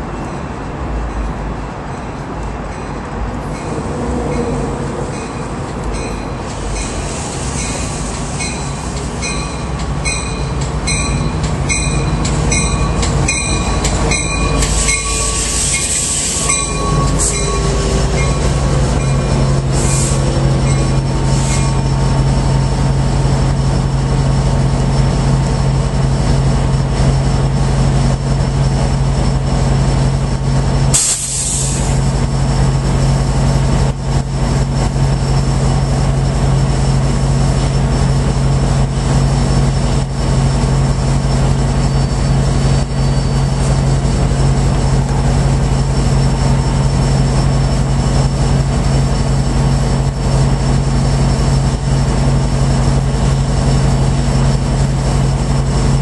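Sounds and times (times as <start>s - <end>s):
diesel locomotive humming: 0.0s - 56.0s
train braking to a stop: 0.0s - 56.0s
brake squealing: 2.0s - 24.0s, 34.5s - 56.0s
brake hiss: 6.4s - 9.4s, 14.6s - 22.2s, 30.9s - 32.1s
sharp air blast: 31.0s - 32.0s.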